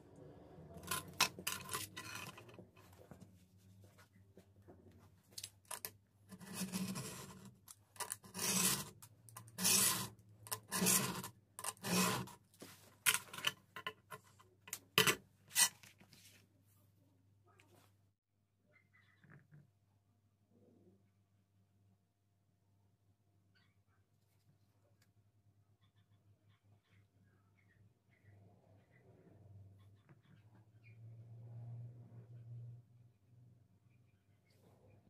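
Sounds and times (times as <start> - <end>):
blade rasping through sheet: 6.3 - 12.4.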